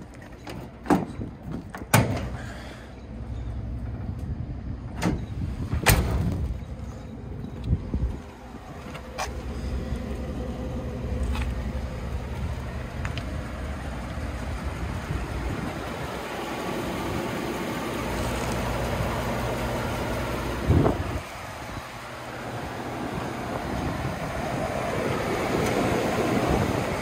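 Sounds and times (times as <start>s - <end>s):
wind noise on microphone: 4.1s - 8.9s, 20.6s - 22.0s, 23.2s - 27.0s
pickup engine idling: 6.4s - 27.0s.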